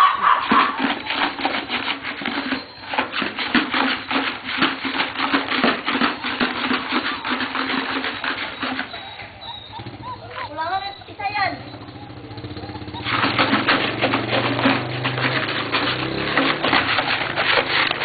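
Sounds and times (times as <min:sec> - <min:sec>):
footsteps on concrete: 0:12.7 - 0:18.0.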